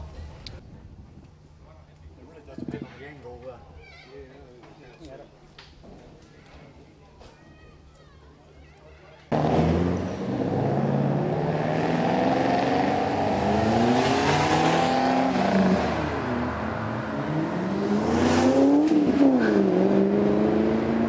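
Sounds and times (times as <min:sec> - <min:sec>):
car engines accelerating: 0:09.3 - 0:21.0.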